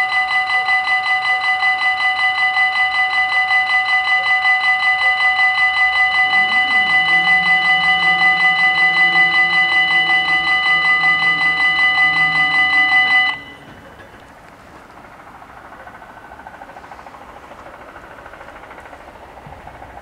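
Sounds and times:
level crossing warning bells: 0:00.0 - 0:20.0.

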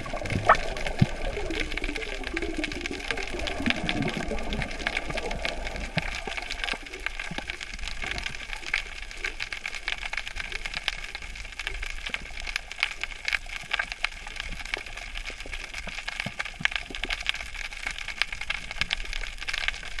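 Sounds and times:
crackle of small clicks underwater: 0:00.0 - 0:20.0.

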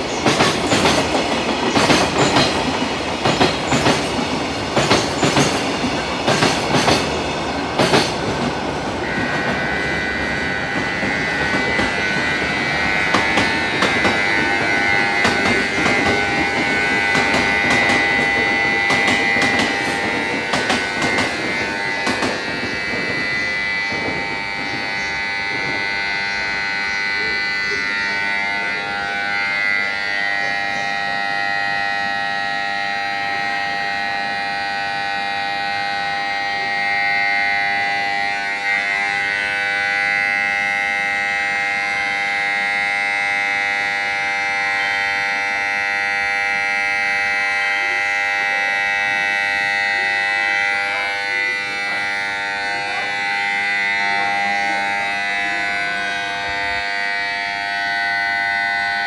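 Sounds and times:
electronic alarm tone: 0:08.9 - 0:32.8, 0:50.9 - 0:59.0.

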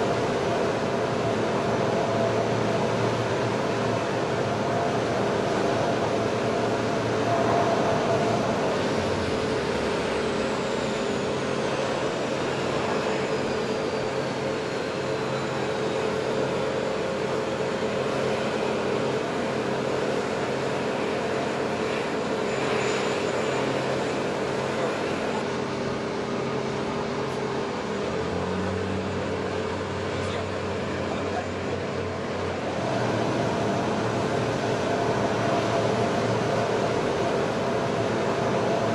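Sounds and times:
turboprop engines droning: 0:00.0 - 0:38.9.

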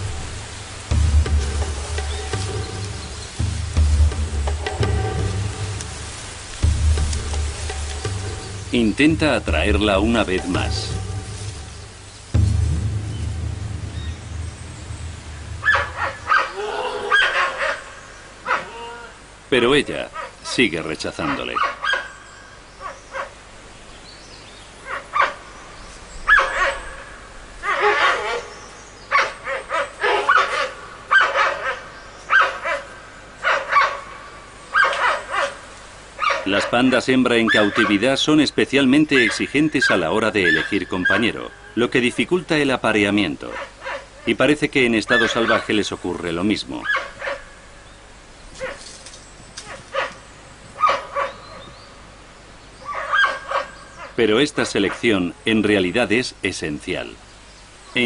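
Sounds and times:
pandas calling: 0:00.0 - 0:23.4, 0:24.0 - 0:58.0
giant pandas yelping calls: 0:15.6 - 0:19.3, 0:21.2 - 0:23.4, 0:26.2 - 0:38.2, 0:39.2 - 0:41.9, 0:46.8 - 0:47.6, 0:52.8 - 0:54.2.

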